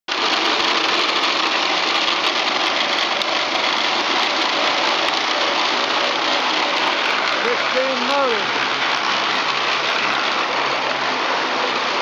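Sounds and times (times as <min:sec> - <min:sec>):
spinning wheels mechanical whir: 0:00.1 - 0:12.0.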